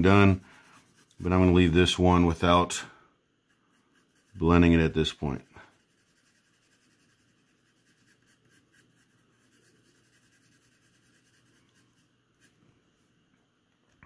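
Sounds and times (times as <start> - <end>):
pencil shading on paper: 0.0 - 2.0, 3.4 - 12.6.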